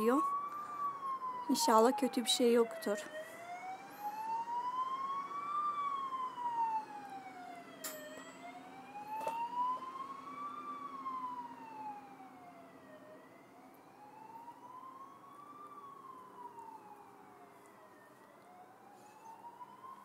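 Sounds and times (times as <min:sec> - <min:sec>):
fire engine siren wailing: 0:00.0 - 0:20.0.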